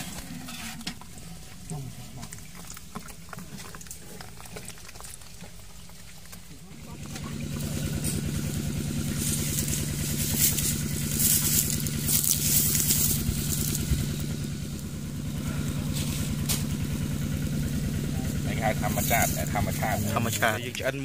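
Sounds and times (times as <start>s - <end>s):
small engine idling: 0.0s - 21.0s
high hiss and crackle: 9.0s - 15.2s.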